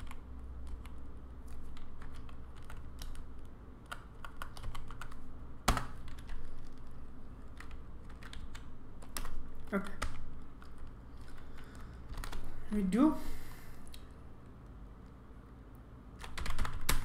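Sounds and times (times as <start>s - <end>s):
typing on computer keyboard: 0.0s - 12.5s, 16.2s - 17.0s.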